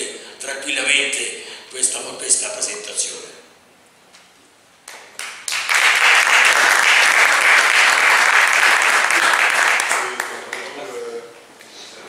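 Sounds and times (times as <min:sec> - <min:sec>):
audience applauding: 0:04.9 - 0:10.8.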